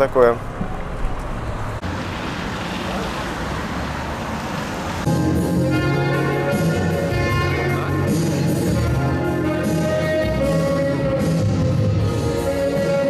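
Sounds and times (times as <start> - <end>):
car cabin road noise: 0.0 - 5.6
saxophone melody with backing music: 5.1 - 13.0.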